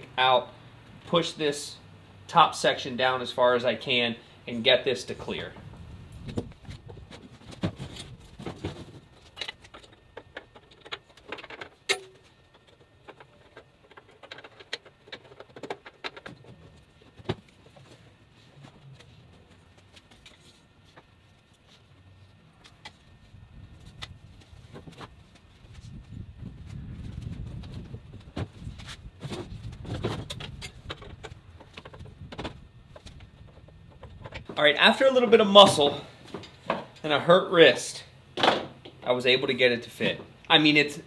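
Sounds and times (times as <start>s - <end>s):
metal frame parts clicking and rattling: 6.3s - 18.0s, 28.8s - 34.5s.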